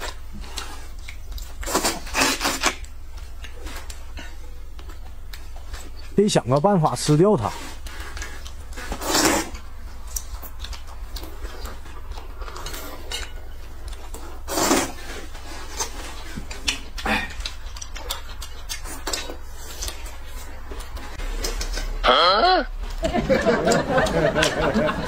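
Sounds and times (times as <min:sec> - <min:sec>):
noodles being slurped: 0:07.4 - 0:10.5, 0:13.9 - 0:17.6.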